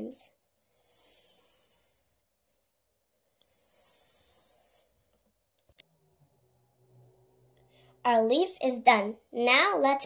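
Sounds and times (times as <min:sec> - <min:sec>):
pencil scratching on paper: 0:00.4 - 0:05.3.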